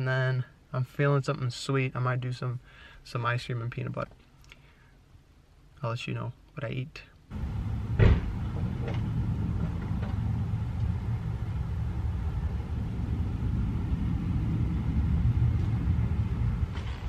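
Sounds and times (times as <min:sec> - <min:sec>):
low rumble: 0:07.3 - 0:17.0.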